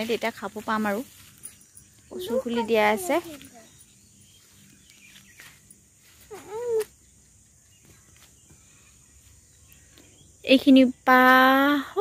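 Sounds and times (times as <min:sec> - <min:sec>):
faint outdoor background: 0:00.0 - 0:12.0.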